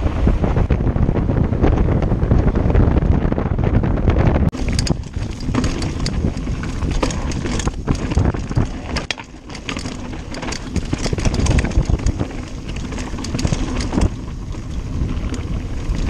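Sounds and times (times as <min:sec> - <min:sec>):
wind noise on microphone: 0:00.0 - 0:16.0
bike clattering over ground: 0:04.5 - 0:16.0.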